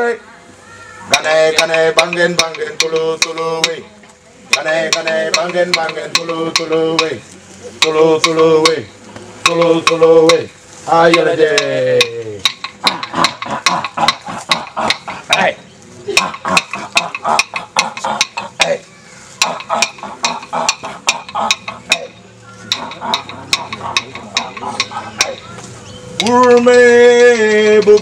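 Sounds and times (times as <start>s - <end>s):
clapsticks striking: 1.1s - 3.8s, 4.5s - 7.2s, 9.4s - 10.5s, 11.1s - 15.5s, 16.2s - 18.8s, 19.4s - 25.5s, 26.2s - 26.8s
man singing in long phrases: 1.1s - 3.8s, 4.6s - 12.0s, 26.2s - 28.0s.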